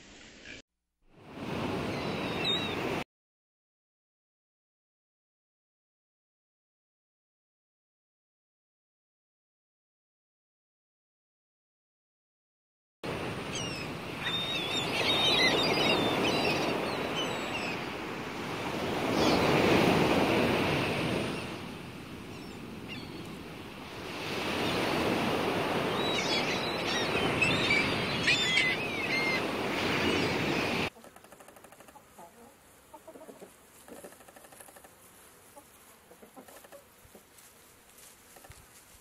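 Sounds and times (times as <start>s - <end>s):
waves washing in: 1.2s - 3.0s, 13.1s - 30.9s
gull calls: 26.0s - 32.4s.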